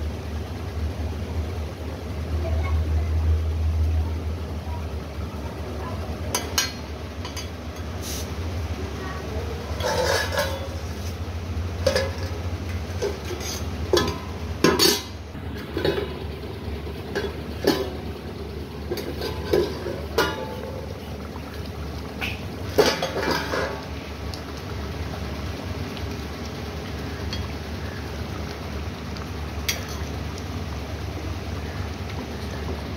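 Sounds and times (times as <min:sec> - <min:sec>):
steady low hum: 0:00.0 - 0:32.9
steel lid clanking: 0:06.3 - 0:08.0, 0:09.7 - 0:11.0, 0:11.8 - 0:20.9, 0:22.2 - 0:23.9
ladle scraping metal pan: 0:09.7 - 0:11.2, 0:13.0 - 0:15.1, 0:22.7 - 0:23.8.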